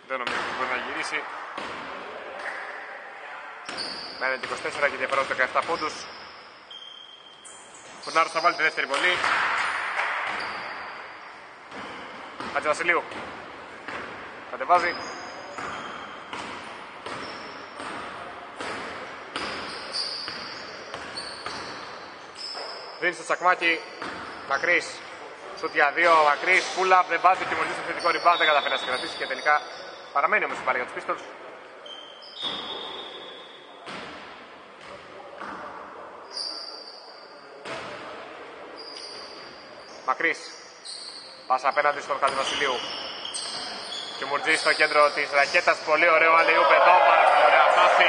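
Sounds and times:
basketball bouncing in gym: 0.1 - 1.0, 1.6 - 2.7, 3.6 - 6.2, 7.8 - 22.9, 23.9 - 25.1, 25.7 - 29.6, 32.3 - 33.0, 33.8 - 35.8, 41.8 - 45.6
shoe squeaks on floor: 3.6 - 9.7, 10.3 - 13.0, 14.6 - 17.9, 19.4 - 26.8, 27.6 - 30.2, 31.8 - 33.7, 36.2 - 37.5, 38.7 - 45.7
basketball bouncing on floor: 11.7 - 14.2, 15.6 - 19.7.

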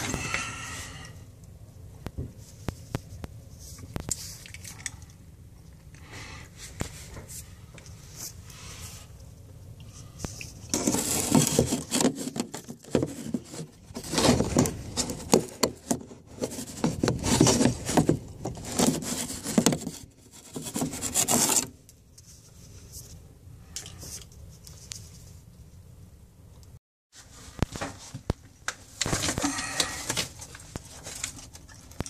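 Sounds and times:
brush scraping inside metal vent pipe: 9.8 - 22.8.

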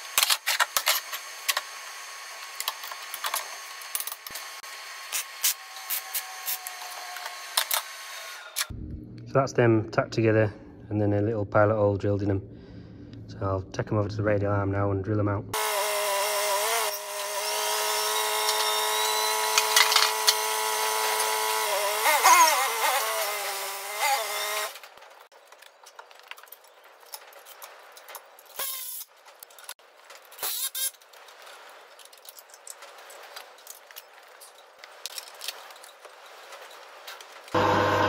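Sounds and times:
electric motor whine: 0.0 - 8.7, 15.6 - 24.8, 37.5 - 38.0.

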